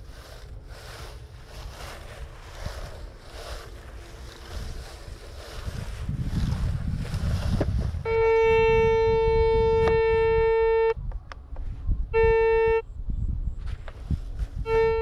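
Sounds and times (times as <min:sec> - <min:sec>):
wind rumble on microphone: 0:00.0 - 0:15.0
metal detector buzzing tone: 0:07.4 - 0:11.0, 0:12.1 - 0:12.8, 0:14.6 - 0:15.0.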